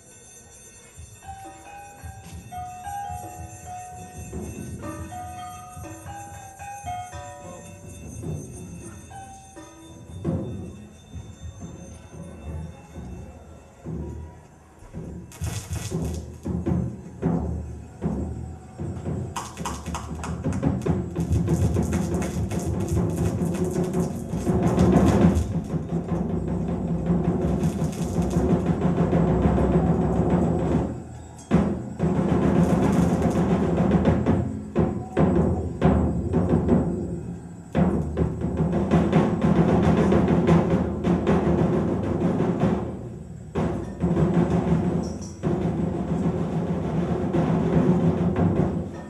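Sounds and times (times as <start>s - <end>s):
deep drum-like percussion: 14.9s - 49.0s.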